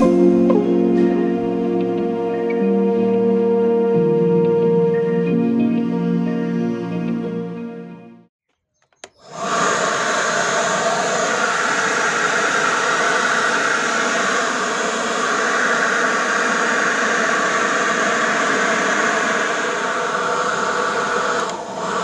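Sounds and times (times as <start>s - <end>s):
fan whine: 9.1s - 22.0s
leaf blower air rush: 9.1s - 22.0s.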